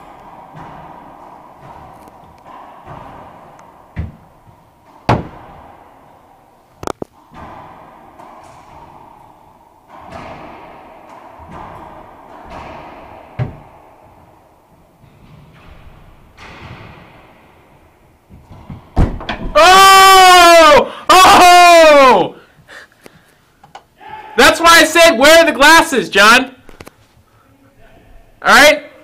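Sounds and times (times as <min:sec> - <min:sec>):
racquets smacking ball: 0:00.0 - 0:19.8
ball striking court walls: 0:00.0 - 0:20.5.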